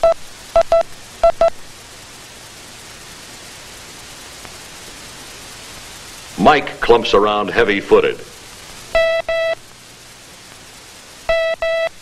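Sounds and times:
steady hiss: 0:00.0 - 0:12.0
morse code tone: 0:09.0 - 0:09.6, 0:11.3 - 0:12.0.

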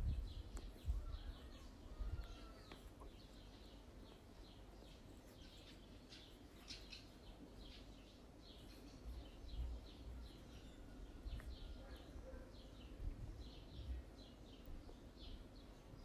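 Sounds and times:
small birds chirping: 0:00.0 - 0:16.0.

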